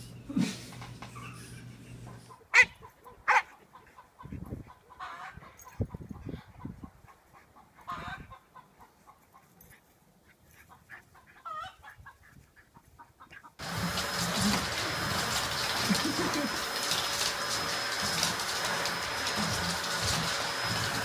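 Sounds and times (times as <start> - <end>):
vacuum cleaner running: 13.6 - 21.0.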